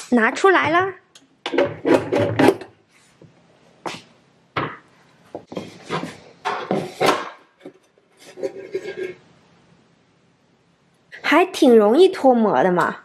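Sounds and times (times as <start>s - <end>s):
metal pan clattering and scraping: 1.5s - 2.7s, 5.5s - 9.2s.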